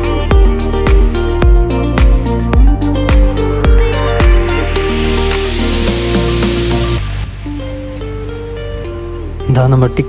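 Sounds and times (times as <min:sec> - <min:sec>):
background music with beat: 0:00.0 - 0:09.3
kick drum: 0:00.3 - 0:04.4.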